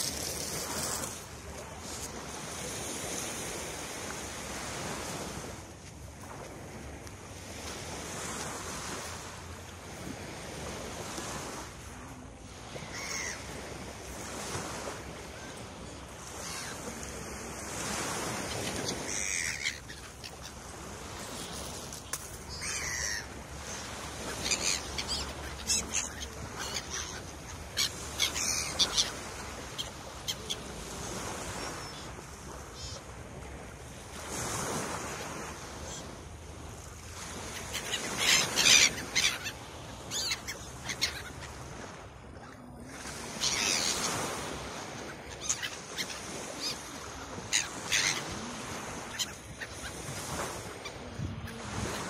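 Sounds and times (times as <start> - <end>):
small waves washing on shore: 0.0 - 52.0
gulls calling: 12.7 - 13.6, 17.8 - 21.6, 22.4 - 32.2, 37.2 - 52.0.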